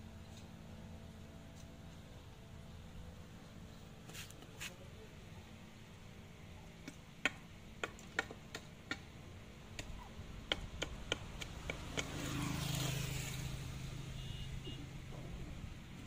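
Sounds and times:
motor vehicle passing: 11.3 - 14.7.

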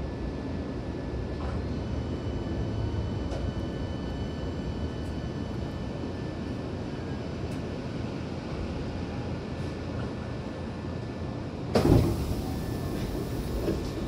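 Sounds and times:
train running rumble: 8.4 - 14.0.

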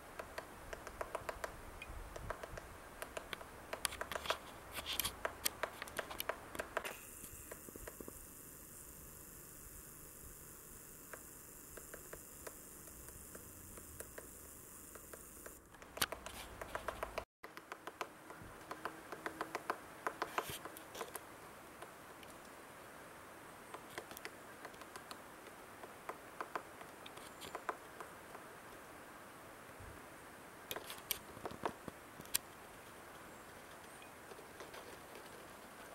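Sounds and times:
woodpecker pecking wood: 0.1 - 8.3, 10.7 - 21.9, 23.7 - 25.2, 25.8 - 28.5, 33.4 - 35.9.

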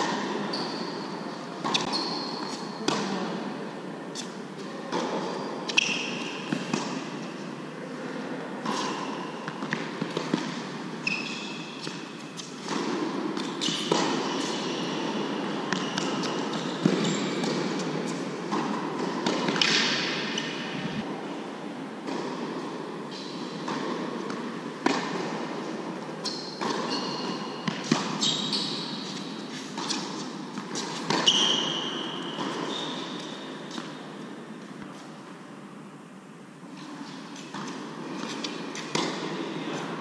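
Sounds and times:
shoes squeaking on court: 0.0 - 3.2, 4.1 - 7.3, 8.6 - 21.0, 26.2 - 34.0
racket striking ball: 11.8 - 20.7
tennis ball bouncing: 11.8 - 20.9, 37.4 - 39.4.

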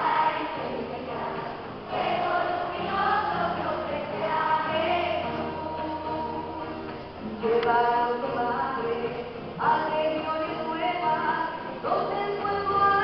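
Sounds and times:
choir singing: 0.0 - 7.0.

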